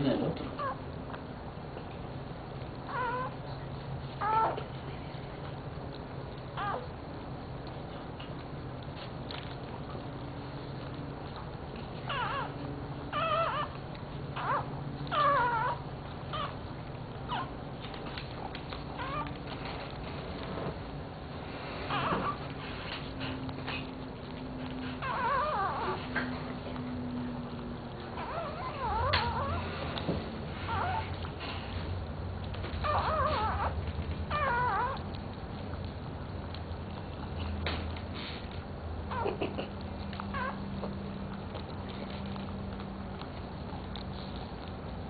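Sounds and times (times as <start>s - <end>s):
dog licking: 0.0s - 45.0s
puppy squealing: 0.5s - 0.8s, 2.9s - 3.5s, 4.2s - 4.8s, 6.5s - 6.9s, 12.0s - 17.7s, 18.4s - 19.9s, 21.6s - 31.6s, 32.8s - 35.2s, 39.1s - 40.9s.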